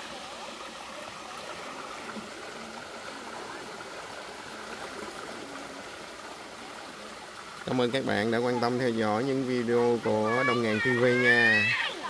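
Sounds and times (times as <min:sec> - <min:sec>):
stream rushing over rocks: 0:00.0 - 0:12.0.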